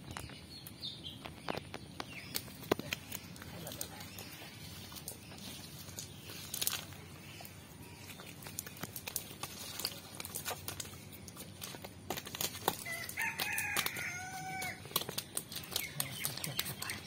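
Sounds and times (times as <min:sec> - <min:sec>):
rooster crowing: 0:12.8 - 0:14.9.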